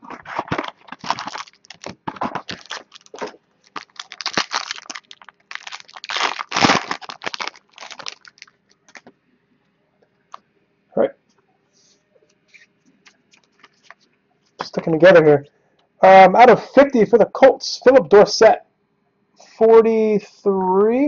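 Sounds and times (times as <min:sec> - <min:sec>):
wrapper crinkling: 0:00.0 - 0:09.1, 0:13.0 - 0:14.8.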